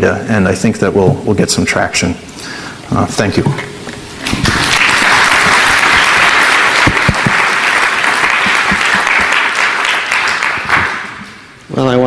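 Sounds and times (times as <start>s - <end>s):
audience applauding: 4.2s - 11.4s.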